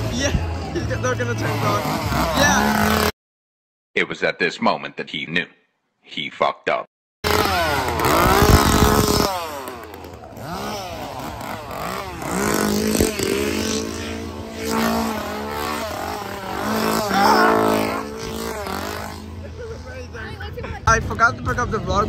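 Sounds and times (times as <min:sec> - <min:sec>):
chainsaw revving: 0:01.3 - 0:03.1, 0:07.2 - 0:19.6.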